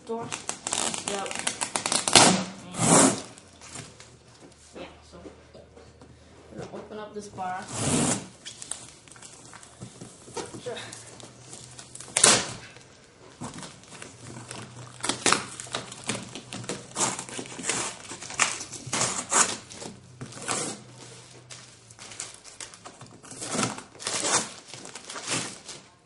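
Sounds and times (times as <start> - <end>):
tape and cardboard crinkling: 0.0 - 4.7, 7.4 - 26.0
packing tape ripping off cardboard: 0.2 - 4.1, 7.7 - 9.8, 11.4 - 26.0.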